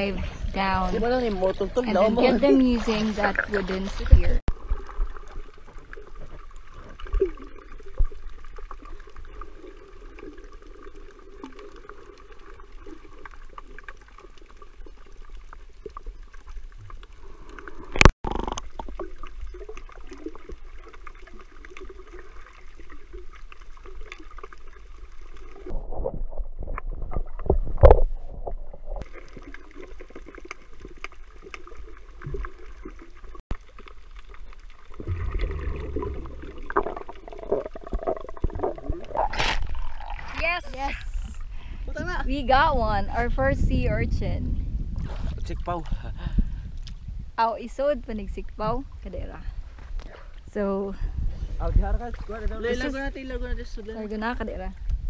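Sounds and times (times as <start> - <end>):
underwater water movement: 0.0 - 55.0
thumps and sloshing: 34.9 - 40.7.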